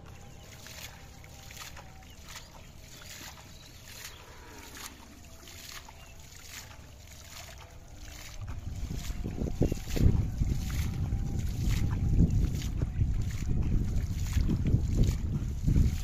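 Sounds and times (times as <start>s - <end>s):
water splashed by hand: 0.0s - 16.0s
wind rumble on microphone: 8.0s - 16.0s.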